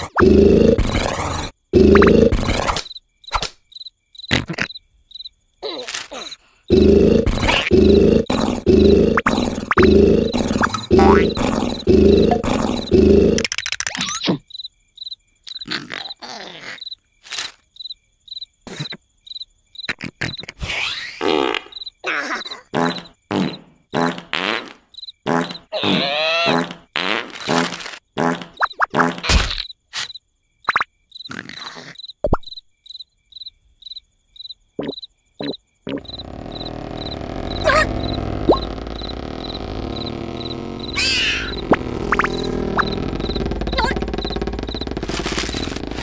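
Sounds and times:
breathy snore: 0.0 - 2.6, 6.7 - 13.4
cartoon snore: 0.0 - 2.8, 6.7 - 13.5, 36.0 - 46.0
crickets chirping: 0.0 - 20.4, 21.2 - 46.0
comic sound effects: 6.7 - 14.2, 34.8 - 46.0.

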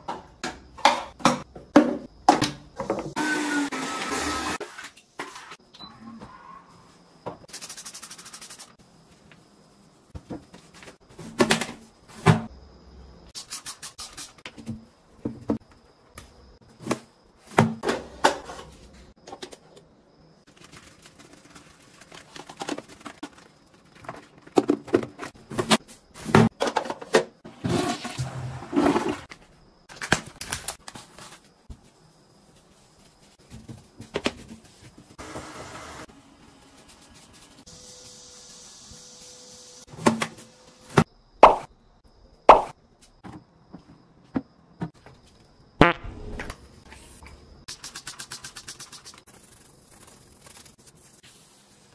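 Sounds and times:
toilet brush scrubbing: 47.7 - 51.6.

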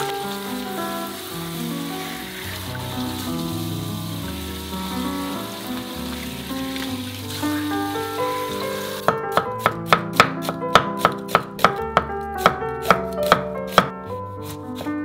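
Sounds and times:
water running: 0.0 - 9.1
background music: 0.0 - 15.0
knife chopping on wooden board: 9.0 - 15.0.

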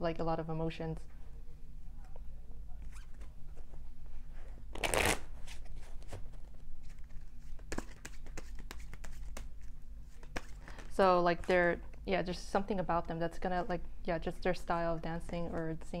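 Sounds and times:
cards being shuffled: 4.7 - 11.5.

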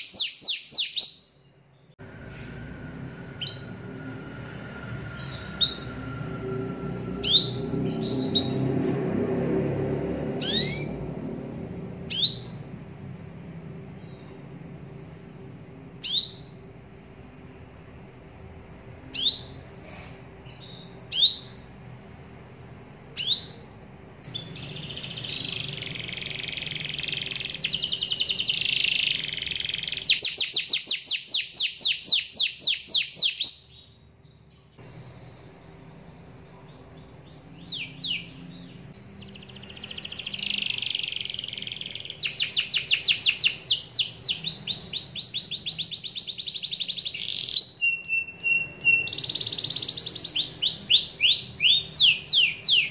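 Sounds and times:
canary singing: 0.0 - 2.0, 3.0 - 9.0, 10.3 - 15.0, 15.9 - 16.8, 18.9 - 19.8, 20.4 - 21.9, 23.0 - 52.9.

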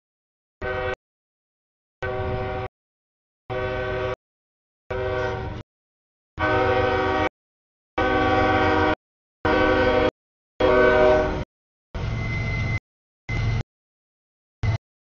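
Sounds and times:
locomotive air horn blasts: 0.6 - 1.0, 2.0 - 2.7, 3.5 - 4.2, 4.9 - 5.6, 6.4 - 7.3, 8.0 - 11.5.

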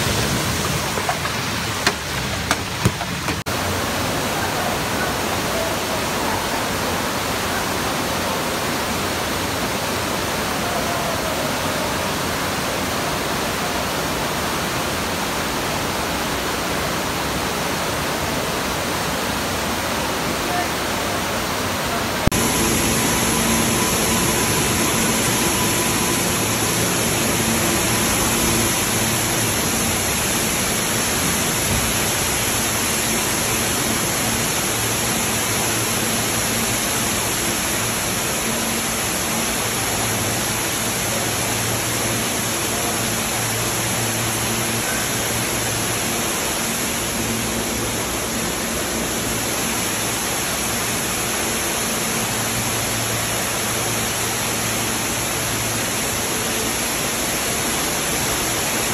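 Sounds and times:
rush of falling water: 0.0 - 58.9.

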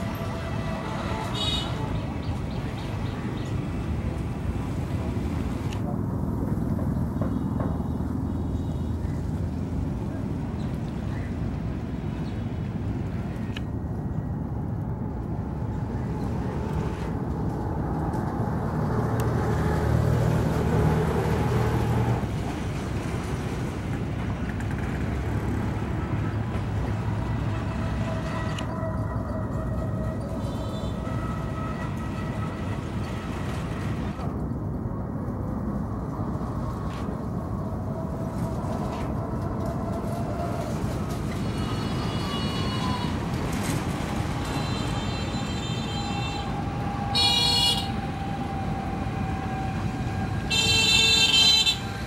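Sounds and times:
noisy outdoor background: 0.0 - 52.0
barge engine drone: 7.6 - 34.4.

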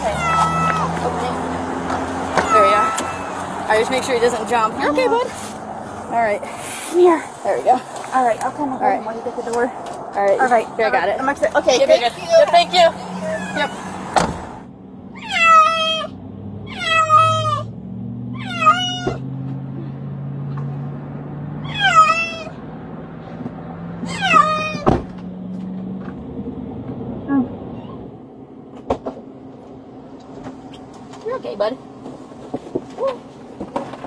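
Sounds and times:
cat meowing: 0.0 - 1.0, 2.4 - 3.4, 13.2 - 13.9, 15.2 - 16.1, 16.7 - 17.7, 18.4 - 19.2, 21.6 - 22.6, 24.1 - 24.9.

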